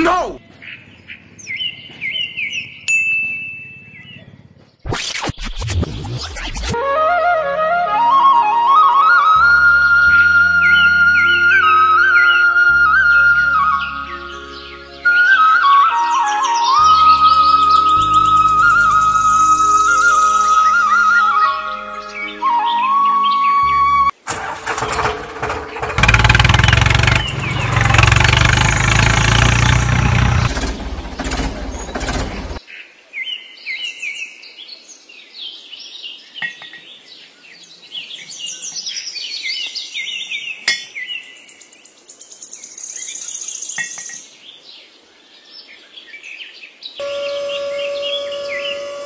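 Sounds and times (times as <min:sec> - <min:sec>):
birds chirping: 0:00.0 - 0:04.9, 0:25.4 - 0:49.0
loud rough engine-like noise: 0:24.3 - 0:32.6, 0:47.0 - 0:49.0.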